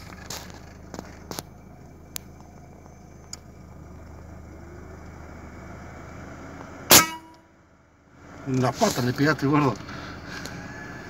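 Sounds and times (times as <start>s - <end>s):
steady low rumble: 0.0s - 8.3s
air rifle shot: 6.9s - 7.3s.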